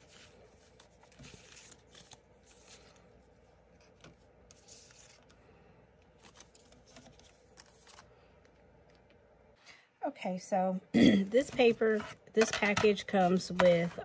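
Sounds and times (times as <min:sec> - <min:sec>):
cardstock rustling and scraping: 0:00.0 - 0:05.4, 0:06.2 - 0:08.1.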